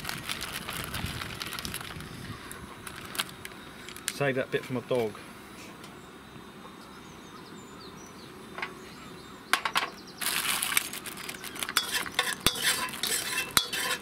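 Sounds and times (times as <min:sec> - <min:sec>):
chicken sizzling in hot oil: 0:10.2 - 0:14.0
spatula scraping wok: 0:11.6 - 0:14.0.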